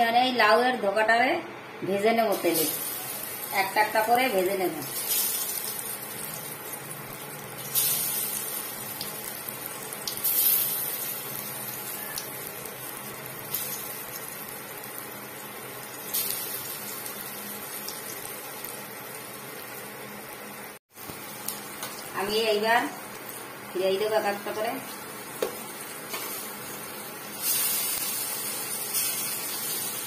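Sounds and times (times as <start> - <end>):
vegetables sizzling in hot oil: 2.3 - 30.0.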